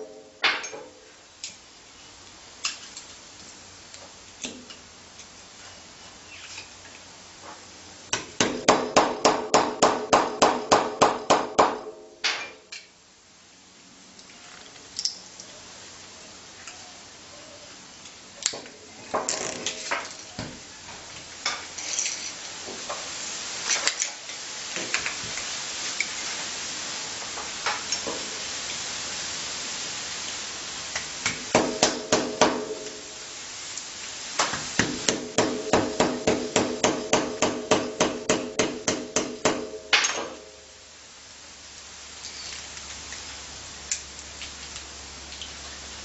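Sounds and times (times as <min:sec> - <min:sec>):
hammer striking steel punch: 0:31.2 - 0:32.8, 0:34.8 - 0:40.4.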